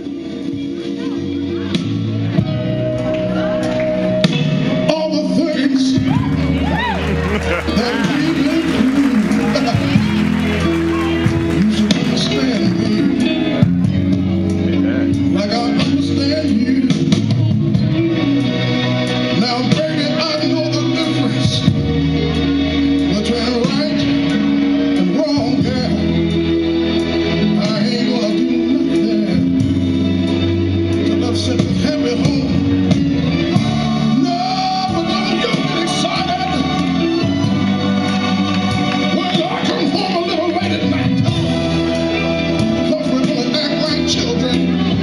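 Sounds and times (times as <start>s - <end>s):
backing music with bass line: 0.0s - 45.0s
man singing soul: 6.8s - 10.6s, 11.3s - 13.6s, 14.6s - 17.6s, 33.4s - 37.2s.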